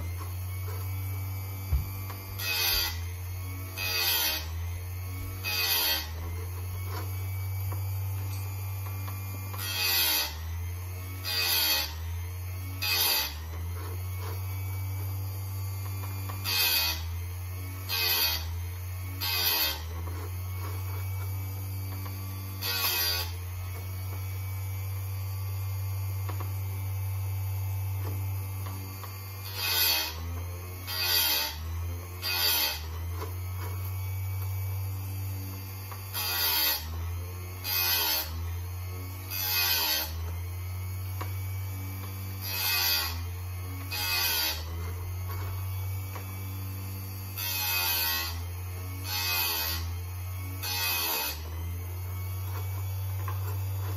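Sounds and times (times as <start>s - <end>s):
chain sharpener motor hum: 0.0s - 53.9s
grinding wheel on chain teeth: 2.1s - 3.1s, 3.7s - 8.6s, 9.5s - 10.4s, 11.2s - 12.0s, 12.8s - 17.2s, 17.8s - 24.0s, 30.9s - 31.6s, 32.2s - 33.8s, 35.5s - 38.6s, 39.2s - 40.4s, 41.5s - 50.0s, 50.6s - 53.9s.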